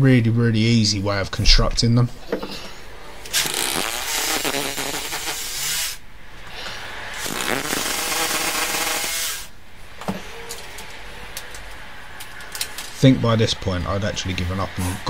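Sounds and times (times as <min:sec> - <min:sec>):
cordless drill running: 0:03.3 - 0:06.0, 0:07.2 - 0:09.5.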